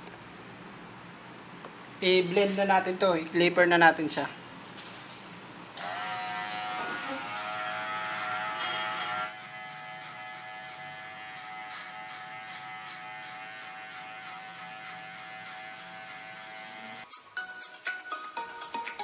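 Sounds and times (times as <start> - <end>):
hair clipper buzzing: 5.8 - 17.1.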